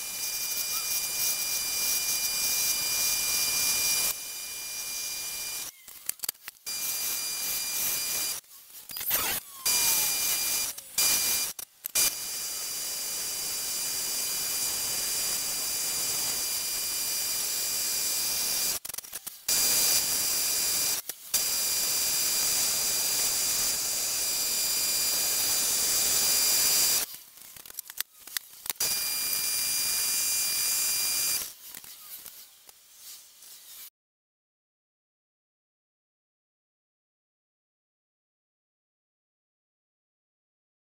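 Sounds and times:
wood lathe hiss and whine: 0.0 - 5.7, 6.6 - 8.4, 9.2 - 18.8, 19.5 - 27.1, 28.7 - 31.5.

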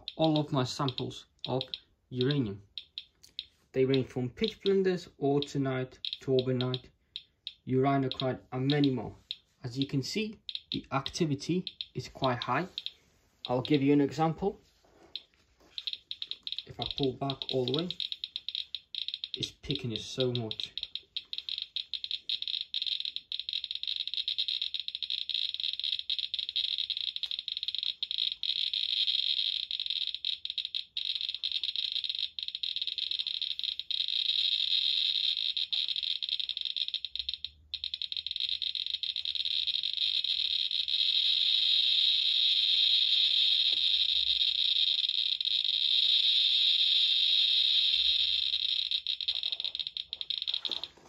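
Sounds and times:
geiger counter crackling: 0.0 - 51.0.

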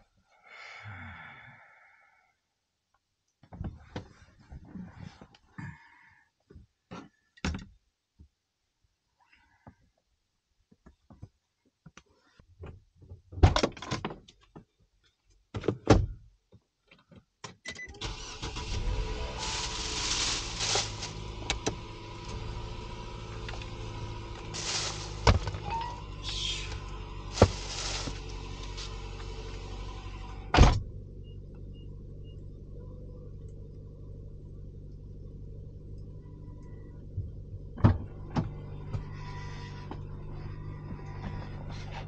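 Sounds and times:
car engine idling: 18.0 - 42.0
rustling: 18.2 - 29.9.

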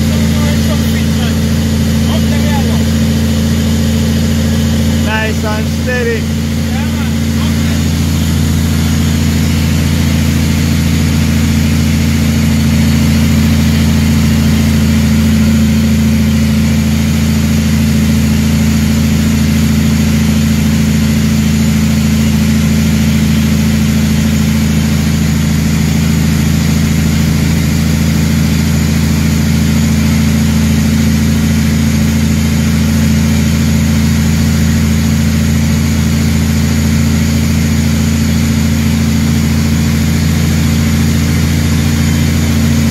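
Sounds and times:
truck engine droning: 0.0 - 42.9.

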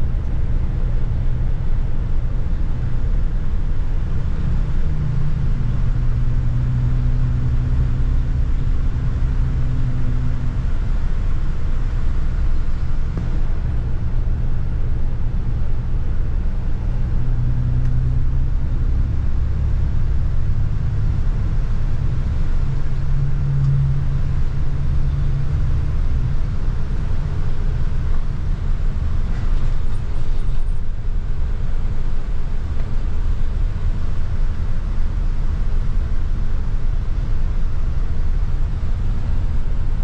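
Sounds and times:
bus road rumble: 0.0 - 40.0
low engine hum: 0.0 - 40.0.

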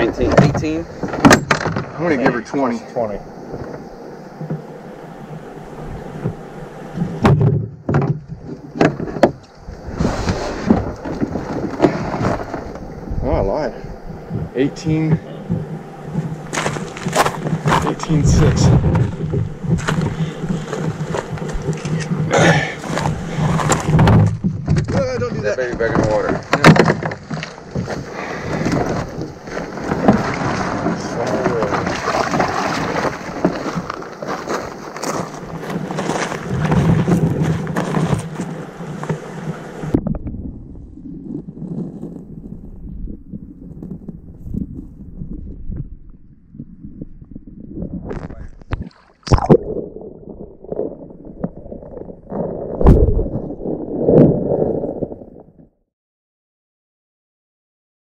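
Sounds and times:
rustling hiss: 0.0 - 24.4, 27.2 - 40.0
water splashing and sloshing: 0.0 - 42.2, 43.8 - 55.8
knocks against boat hull: 7.0 - 9.4.

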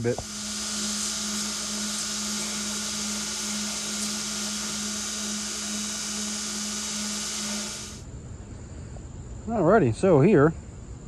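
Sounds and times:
belt grinder motor hum: 0.0 - 8.0
belt grinding wood hiss: 0.0 - 8.0.

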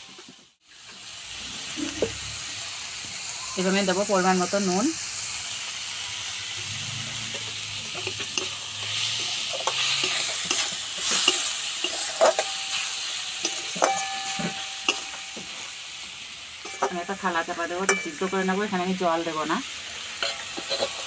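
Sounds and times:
metal spatula scraping pan: 6.7 - 15.9, 16.6 - 19.0, 20.0 - 21.0
spatula clicking on pan: 9.5 - 15.5
short metallic rings: 11.9 - 15.7.

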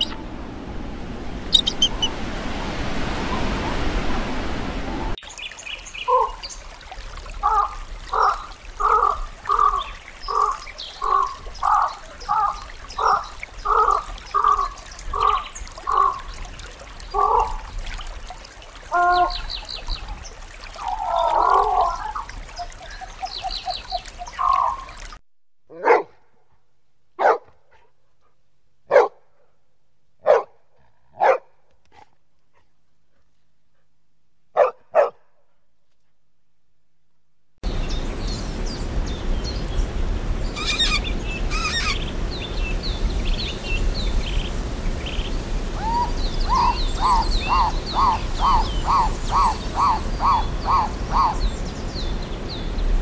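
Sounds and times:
repeated animal calls: 1.5 - 2.2, 40.6 - 42.1
dog barks: 25.7 - 26.4, 27.2 - 29.5, 30.2 - 32.7, 34.5 - 35.4.

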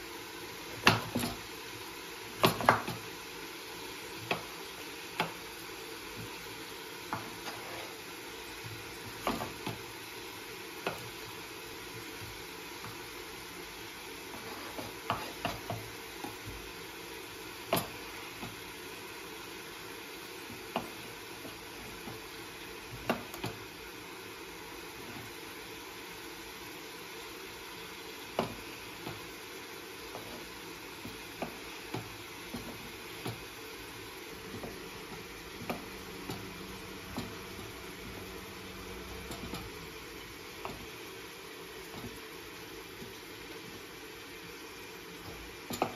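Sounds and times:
vegetables sizzling in pan: 0.0 - 45.9
knife tapping cutting board: 2.4 - 3.0, 7.1 - 7.8, 9.2 - 9.8, 14.4 - 16.6, 34.5 - 38.1.

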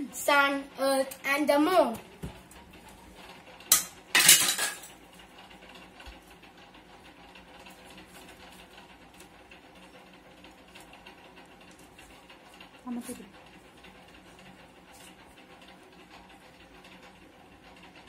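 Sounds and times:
hard objects clattering: 3.7 - 5.0.

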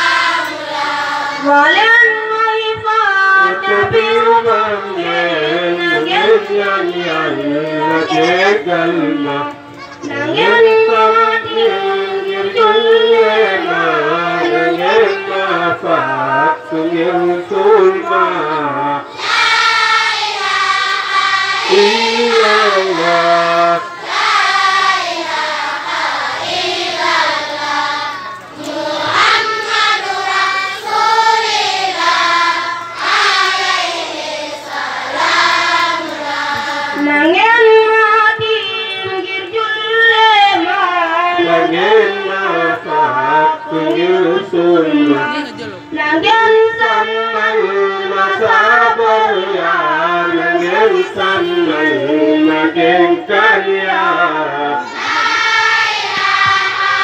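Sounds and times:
children singing: 0.0 - 1.8, 17.4 - 39.6, 54.8 - 57.0
person singing religious chant: 0.0 - 57.0.

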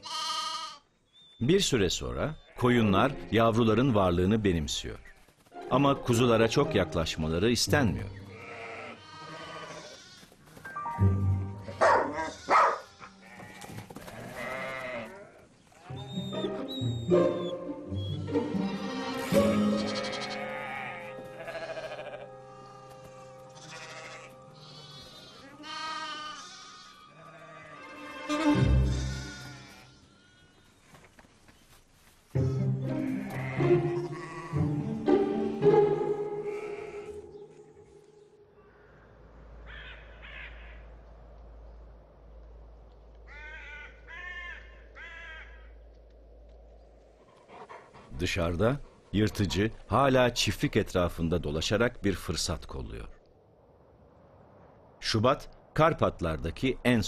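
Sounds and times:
sheep and lambs bleating: 0.0 - 0.9, 8.1 - 10.6, 11.5 - 16.6, 18.4 - 30.6, 32.4 - 34.7, 36.4 - 37.9, 43.3 - 45.6
soft background music: 5.6 - 8.8, 10.6 - 12.2, 15.9 - 25.8, 28.0 - 29.7, 32.3 - 38.4
crow cawing: 36.5 - 37.4, 38.6 - 41.0, 43.3 - 45.8
faint low rumble: 39.1 - 43.5.

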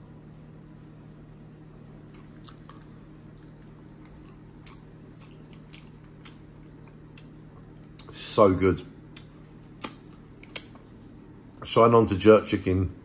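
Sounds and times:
faint low hum: 0.0 - 13.0
person chewing food: 2.0 - 8.2, 9.1 - 10.9
wet mouth clicks and smacks: 9.1 - 10.8.

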